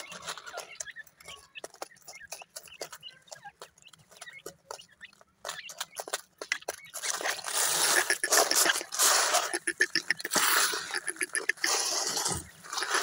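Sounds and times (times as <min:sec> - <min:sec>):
birds pecking at feed clicks: 0:00.0 - 0:13.0
soft chick peeps: 0:00.0 - 0:13.0
hand sweeping feed across dirt: 0:07.1 - 0:13.0.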